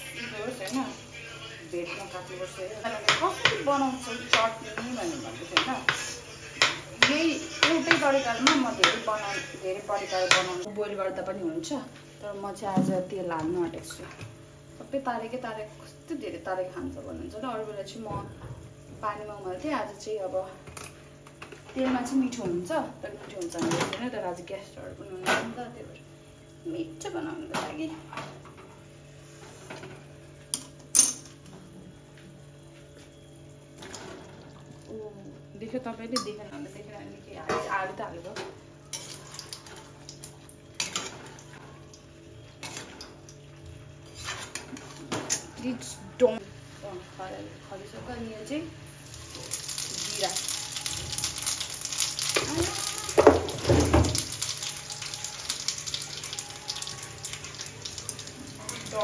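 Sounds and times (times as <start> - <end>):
seeds sizzling in hot oil: 48.9 - 59.0.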